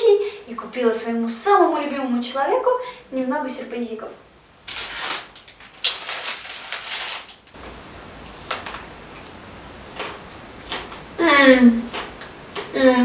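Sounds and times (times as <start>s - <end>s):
plastic candy wrapper crinkling: 4.7s - 7.6s.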